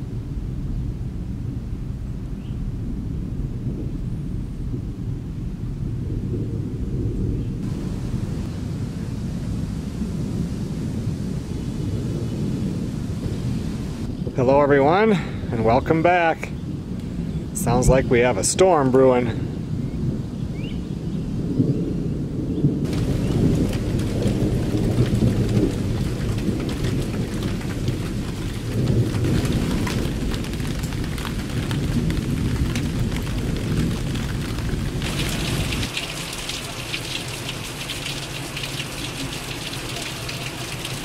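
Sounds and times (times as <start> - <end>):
deep thunder rumble: 0.0 - 41.0
heavy rain hissing: 7.6 - 14.1, 22.8 - 41.0
raindrops pattering on hard surface: 22.8 - 41.0.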